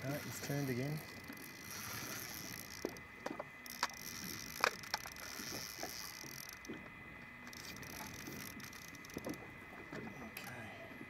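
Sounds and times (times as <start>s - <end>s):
fishing reel clicking: 0.0s - 6.8s, 7.4s - 9.4s
wind and water hiss: 0.0s - 11.0s.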